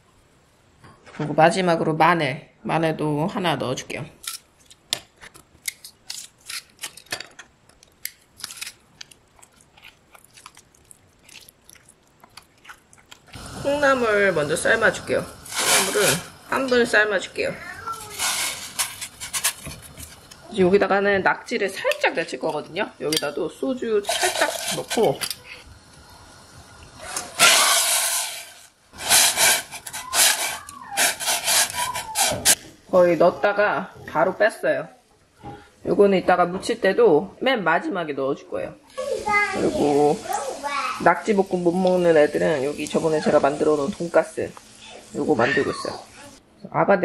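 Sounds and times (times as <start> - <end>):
chopsticks stirring and scraping: 8.0 - 13.4, 15.4 - 16.9, 17.8 - 20.6, 21.8 - 25.5, 27.4 - 32.6
octopus sliding into pot of water: 13.3 - 16.6, 18.0 - 20.4, 27.1 - 32.6.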